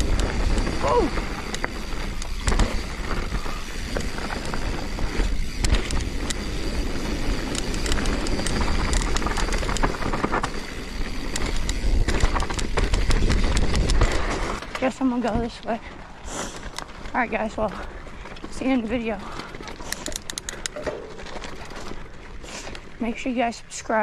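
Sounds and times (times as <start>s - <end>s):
wind rumble on microphone: 0.0s - 14.6s
bicycle tyre noise on trail: 0.0s - 24.0s
bike clicks and rattles: 0.0s - 24.0s.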